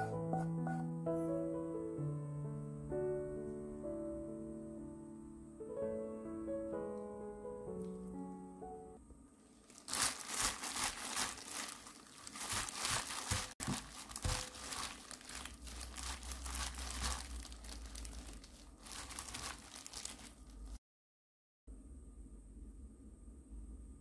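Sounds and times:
plastic glove crinkling: 9.4s - 20.8s
wet carrots rustling and squishing: 9.5s - 20.8s.

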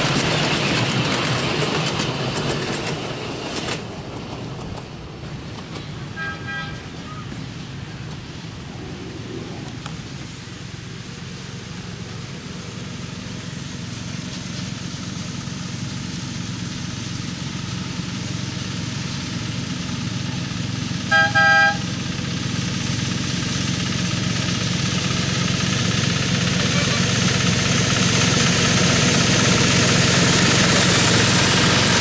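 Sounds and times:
diesel locomotive engine running: 0.0s - 32.0s
train horn toots: 6.1s - 7.4s, 21.0s - 21.9s.

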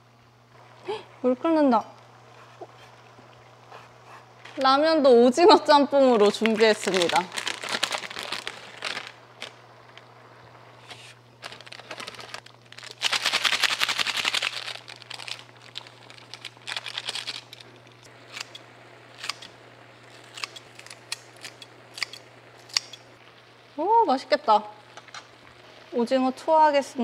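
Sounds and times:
steady low hum: 0.0s - 27.0s
plastic packets crinkling: 6.2s - 10.1s, 10.8s - 18.6s
kitchen scissors snipping: 20.2s - 23.0s.

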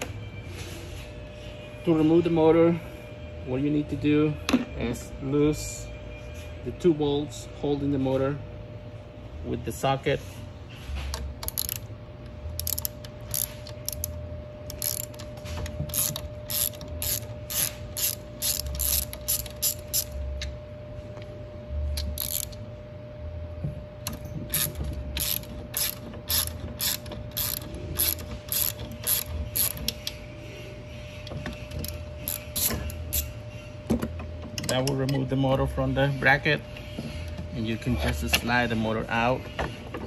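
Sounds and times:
ratchet wrench clicking: 11.4s - 11.9s, 12.5s - 20.2s, 22.0s - 22.6s, 24.0s - 30.2s, 31.6s - 33.4s.

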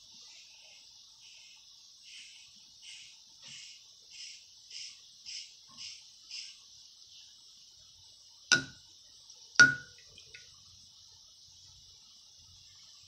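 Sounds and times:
steady high hiss: 0.0s - 13.0s
razor knocking on mug: 8.5s - 8.8s, 9.6s - 10.0s.

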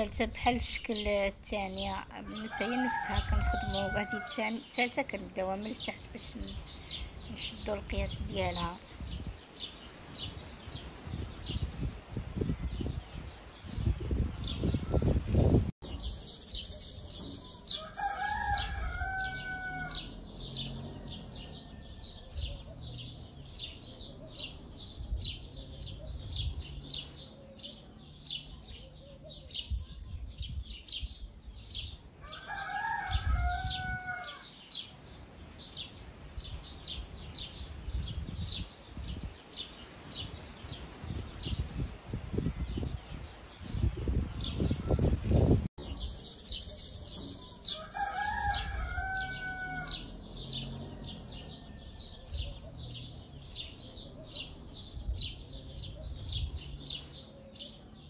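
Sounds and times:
rooster crowing: 2.3s - 4.4s, 17.8s - 22.5s, 32.2s - 34.6s, 47.7s - 52.4s
dull low thumps and rumbles: 8.0s - 9.4s, 11.0s - 17.5s, 41.0s - 47.6s.

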